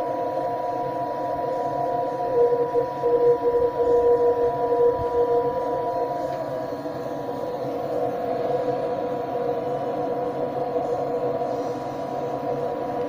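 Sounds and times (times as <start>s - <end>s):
faint steady whistle: 0.0s - 13.0s.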